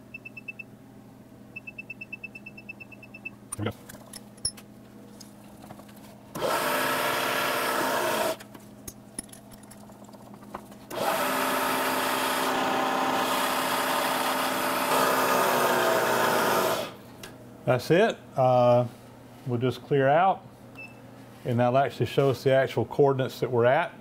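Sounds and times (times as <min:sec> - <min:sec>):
drill cutting metal: 0:06.4 - 0:08.4, 0:10.9 - 0:17.0.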